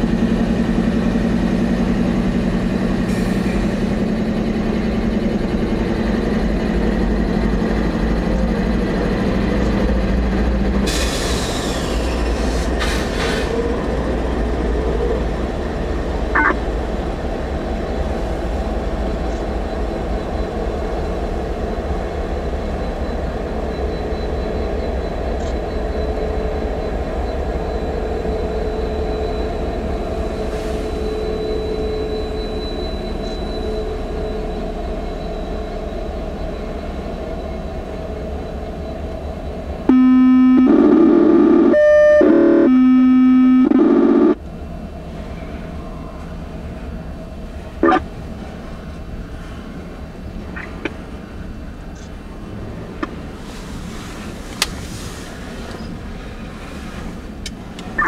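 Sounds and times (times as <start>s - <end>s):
freight train rumbling: 0.0s - 58.0s
locomotive air horn blasts: 39.9s - 44.2s.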